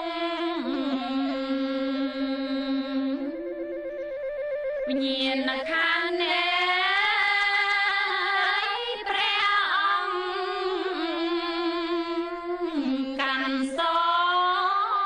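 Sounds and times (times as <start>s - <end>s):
sustained instrumental accompaniment: 0.0s - 9.2s
person singing slow wavering notes: 0.0s - 15.0s.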